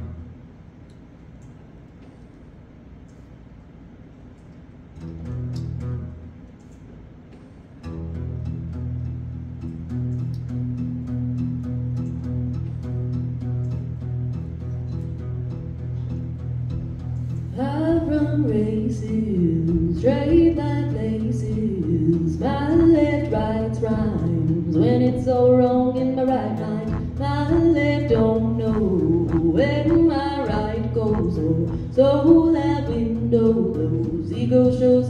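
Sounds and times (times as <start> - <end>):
acoustic guitar: 4.9 - 6.4, 7.3 - 35.0
woman singing: 17.6 - 35.0.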